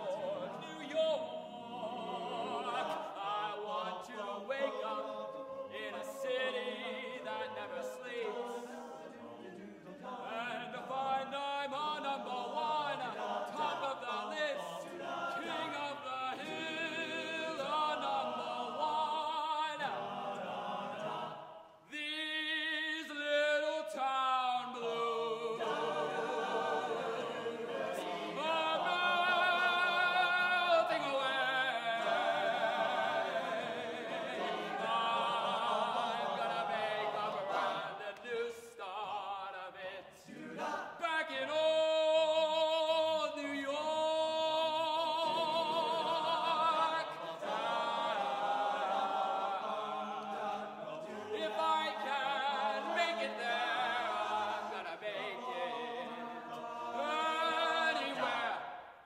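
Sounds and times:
men's choir singing a cappella: 0.0 - 59.0.

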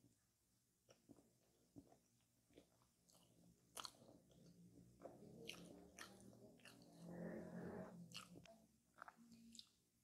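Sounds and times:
chewing: 0.9 - 9.9.

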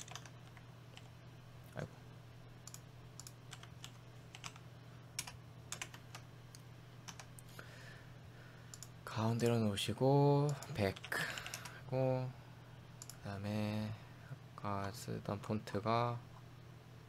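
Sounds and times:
keyboard typing: 0.0 - 1.1, 2.6 - 4.6, 5.2 - 7.4, 10.4 - 11.8
steady low hum: 0.0 - 17.0.

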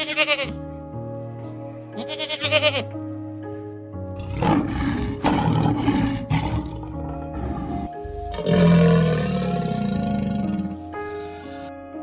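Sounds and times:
background music: 0.0 - 12.0
deep rasping animal roar: 4.2 - 10.9.

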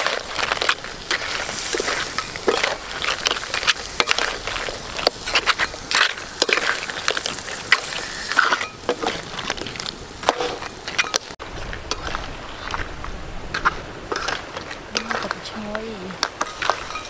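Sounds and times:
hiss of frying: 0.0 - 11.4
metal spatula scraping a wok: 0.0 - 12.8, 13.5 - 15.4, 16.3 - 17.0.

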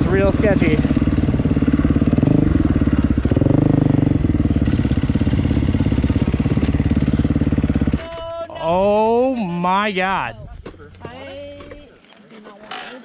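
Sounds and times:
dirt bike engine running: 0.0 - 9.2.

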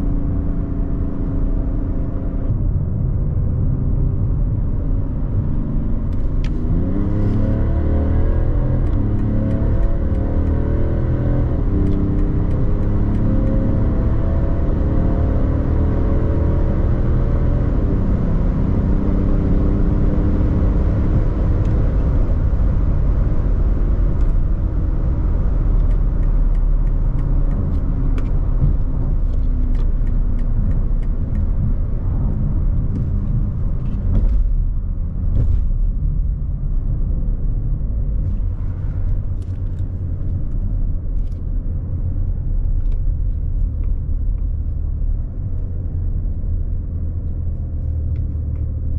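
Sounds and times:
car engine accelerating: 0.0 - 48.9
wind and tyre noise: 0.0 - 48.9.

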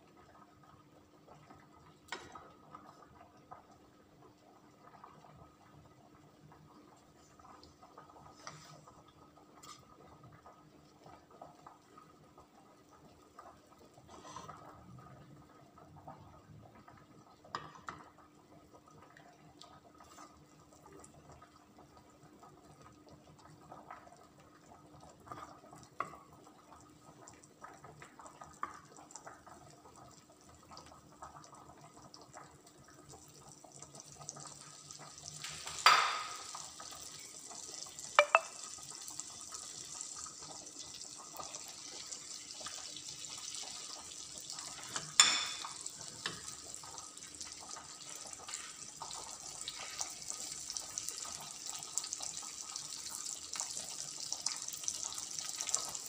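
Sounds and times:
chicken sizzling in butter: 39.0 - 56.0.

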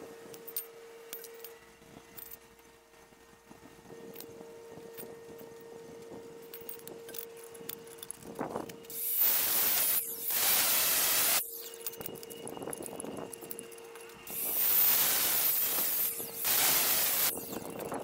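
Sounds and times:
loud hiss: 8.9 - 11.5, 14.3 - 17.6
angle grinder cutting steel tube: 8.9 - 12.2, 13.6 - 18.0.

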